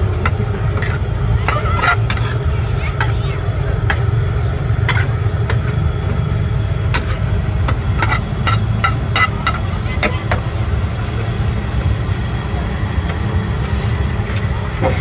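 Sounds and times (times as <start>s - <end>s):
steady low hum: 0.0s - 15.0s
metal spatula scraping frying pan: 0.7s - 3.2s, 4.8s - 5.7s, 6.9s - 9.8s.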